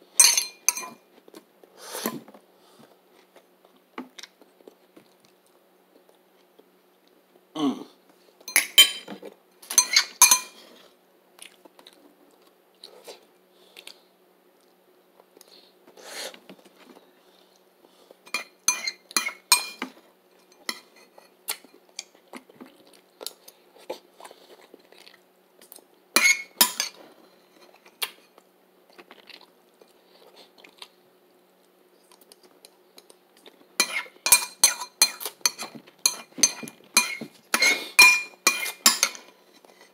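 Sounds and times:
faint steady hum: 0.0 - 39.9
cutlery clinking on a plate: 0.2 - 1.0, 8.5 - 10.6, 18.3 - 21.8, 26.2 - 27.0, 33.8 - 39.9
chewing: 11.4 - 15.5, 21.5 - 25.9, 28.0 - 31.0.

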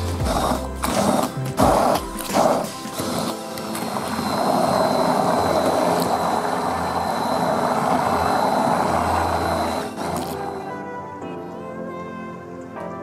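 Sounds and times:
immersion blender running: 0.0 - 10.7.

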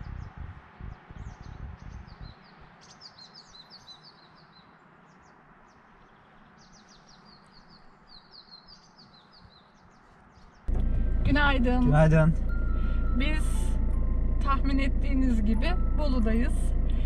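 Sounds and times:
low rumble: 0.0 - 2.4, 10.7 - 17.0
faint outdoor hiss: 0.0 - 13.8
songbirds chirping: 0.0 - 17.0.

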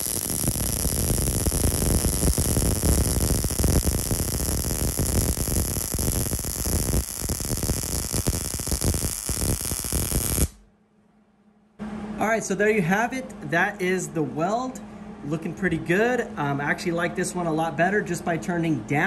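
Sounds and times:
welding arc sizzling and crackling: 0.0 - 10.6.

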